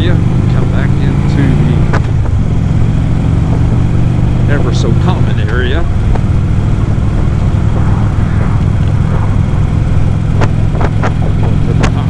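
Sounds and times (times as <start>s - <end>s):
motorcycle engine cruising: 0.0s - 12.0s
wind rush: 1.7s - 12.0s.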